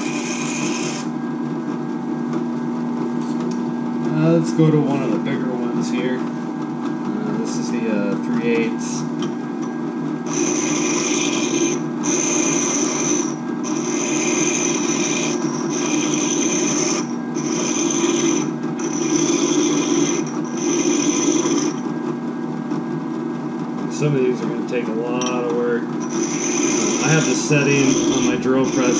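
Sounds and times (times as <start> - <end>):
high scraping grind: 0.0 - 1.1, 10.3 - 21.9, 25.2 - 28.9
drill press humming: 0.0 - 1.2, 10.2 - 22.0, 23.9 - 28.9.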